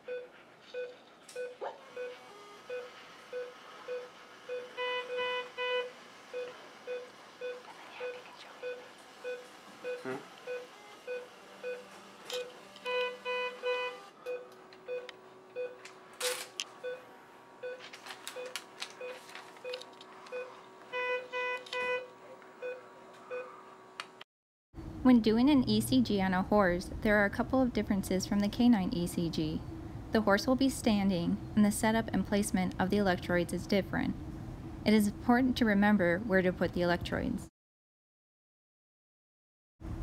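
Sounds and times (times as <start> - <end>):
ecg monitor beeping: 0.1 - 11.8.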